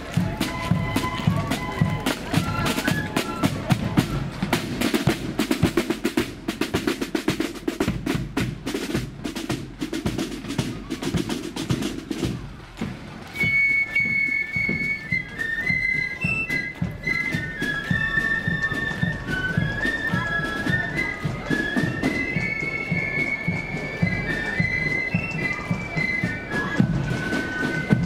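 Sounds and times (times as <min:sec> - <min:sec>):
flute melody: 0:00.0 - 0:05.2, 0:13.2 - 0:28.0
snare drums rolling: 0:00.0 - 0:28.0.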